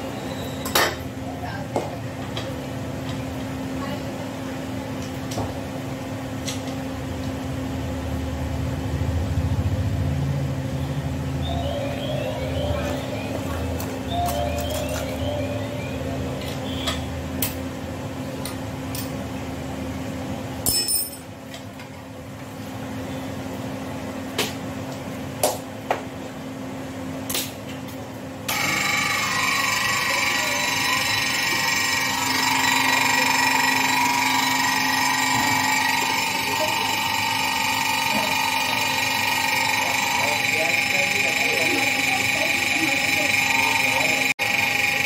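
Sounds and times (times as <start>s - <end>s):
machine hum: 5.6s - 21.2s, 28.3s - 45.0s
high-pitched whine: 8.1s - 17.6s, 28.5s - 45.0s.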